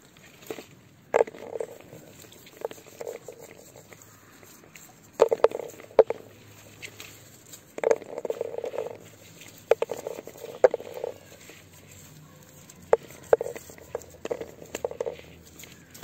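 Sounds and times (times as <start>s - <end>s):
berries pattering into plastic bowl: 5.0s - 11.6s, 12.6s - 16.0s.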